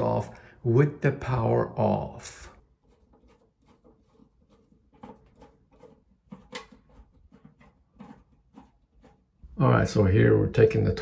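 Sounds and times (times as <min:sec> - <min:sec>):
screwdriver clicking and scraping: 0:02.9 - 0:09.2.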